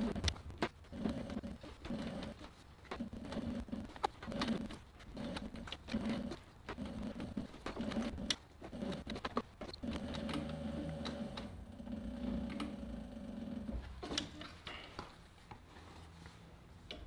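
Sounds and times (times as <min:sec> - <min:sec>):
sewing machine stitching leather: 0:00.0 - 0:14.9.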